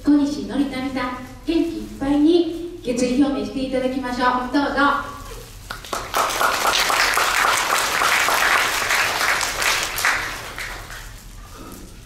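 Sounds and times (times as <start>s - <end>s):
audience applauding: 5.7s - 11.2s.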